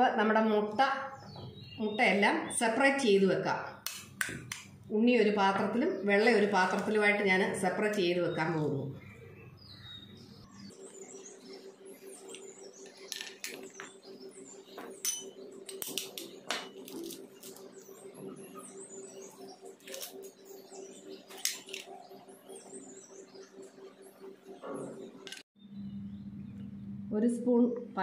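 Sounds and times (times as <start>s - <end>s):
small birds chirping: 0.5s - 4.5s, 5.2s - 28.0s
low hum: 8.7s - 28.0s.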